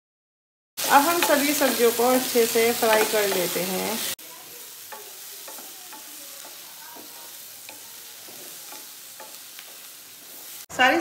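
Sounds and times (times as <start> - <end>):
spatula scraping a pan: 0.8 - 10.7
vegetables sizzling in hot oil: 0.8 - 11.0.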